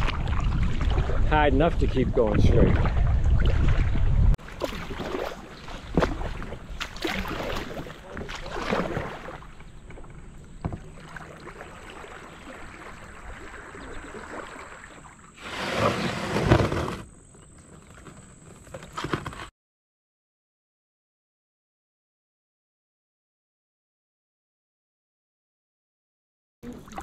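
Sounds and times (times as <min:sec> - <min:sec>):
kayak paddle splashing in water: 0:02.6 - 0:17.0.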